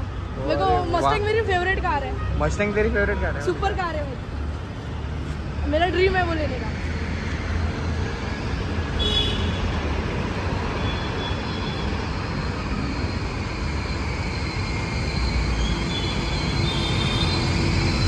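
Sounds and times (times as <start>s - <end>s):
road traffic noise: 0.0s - 18.0s.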